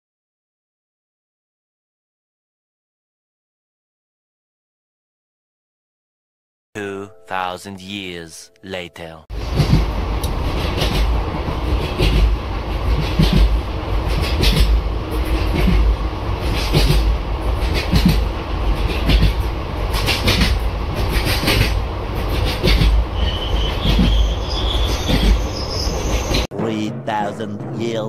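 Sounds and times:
train rumbling at speed: 9.3 - 26.6
wheels clacking over rail joints: 9.4 - 26.5
thin wheel squeal: 22.5 - 26.5.

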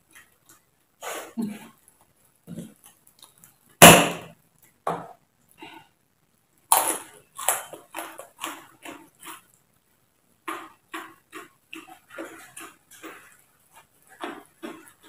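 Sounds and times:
chewing and lip-smacking: 6.7 - 9.6, 10.4 - 15.0.

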